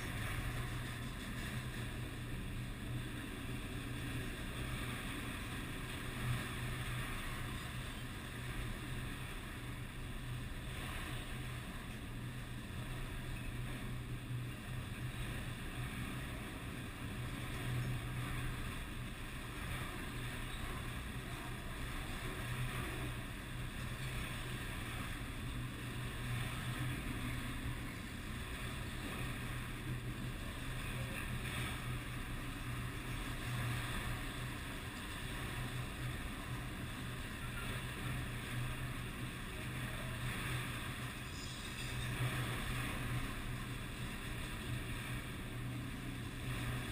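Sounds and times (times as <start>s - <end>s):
freight train wheels rumbling on rail: 0.0s - 5.0s.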